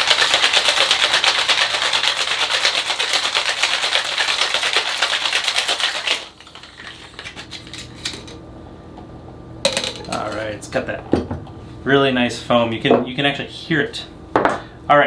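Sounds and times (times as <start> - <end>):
ice rattling in cocktail shaker: 0.0 - 8.3.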